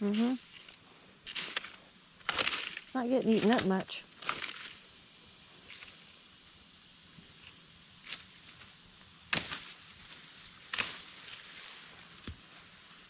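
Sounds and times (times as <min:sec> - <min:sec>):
insects droning: 0:00.0 - 0:13.0
knocks or rustles in brush: 0:01.3 - 0:04.8, 0:09.3 - 0:12.7.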